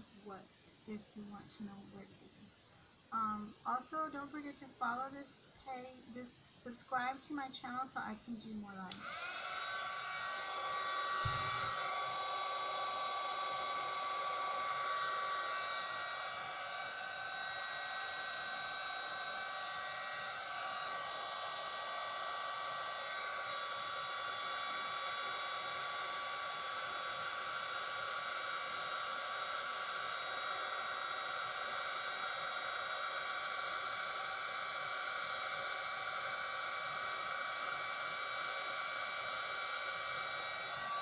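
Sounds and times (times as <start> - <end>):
heat gun blowing air: 8.9 - 41.0.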